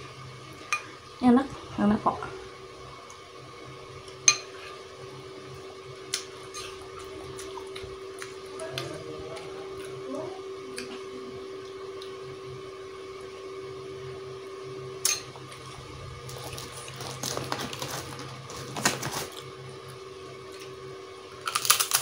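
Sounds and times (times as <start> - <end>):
steady background hum: 0.0 - 22.0
eating soup: 6.1 - 10.0.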